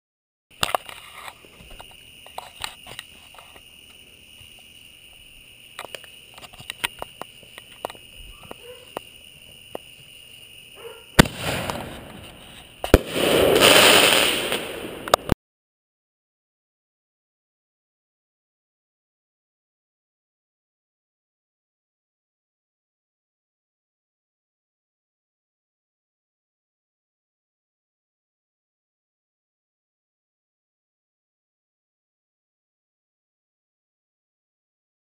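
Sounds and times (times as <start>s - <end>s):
firework launch bang: 11.2s - 15.4s
firework shell bursting: 11.2s - 15.4s.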